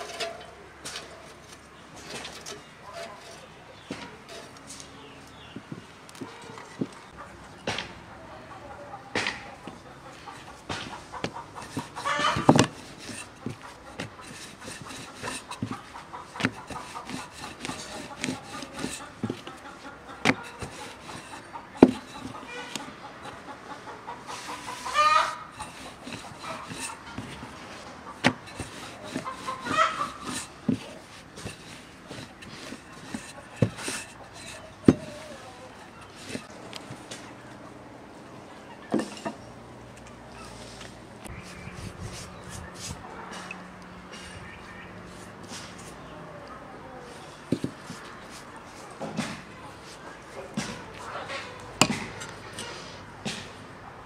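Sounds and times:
chickens calling: 0.0 - 54.0
sharp knocks and clicks: 9.1 - 23.4, 24.5 - 35.2.

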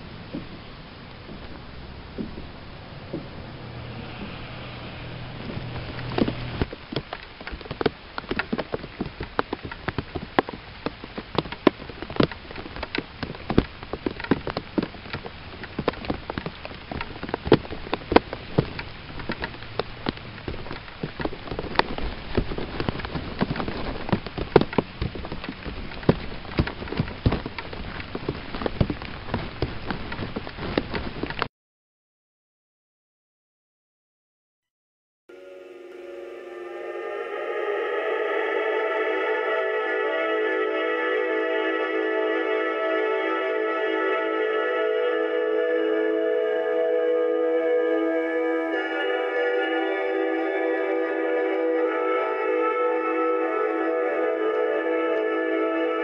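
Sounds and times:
rain drops tapping: 0.0 - 3.8, 5.4 - 31.5.

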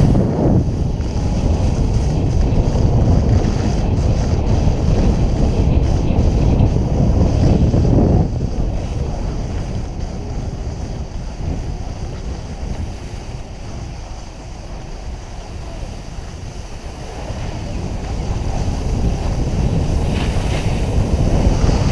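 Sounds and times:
skis sliding over snow: 0.0 - 21.9
wind buffeting microphone: 0.0 - 21.9.

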